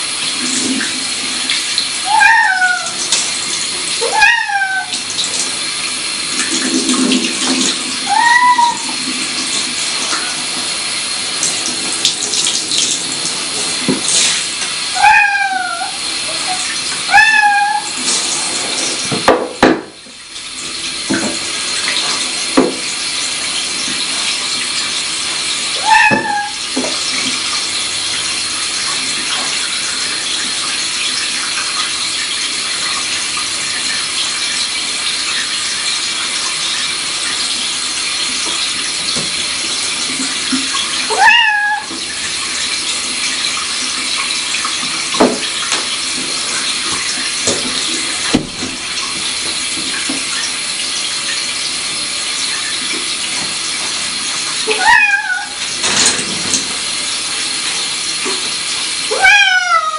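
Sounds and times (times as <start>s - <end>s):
running water: 0.0s - 59.9s
cat meowing: 2.0s - 3.0s, 4.0s - 5.0s, 8.0s - 8.9s, 14.9s - 18.0s, 25.8s - 26.6s, 41.1s - 41.9s, 54.6s - 55.6s, 59.1s - 59.9s.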